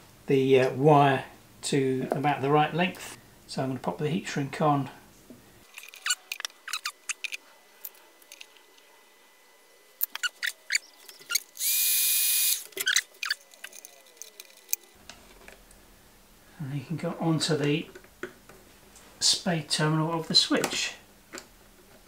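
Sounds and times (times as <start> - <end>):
wire handling clicks and rustles: 5.6 - 8.8, 12.5 - 15.8
heat gun hissing and whining: 11.6 - 12.7.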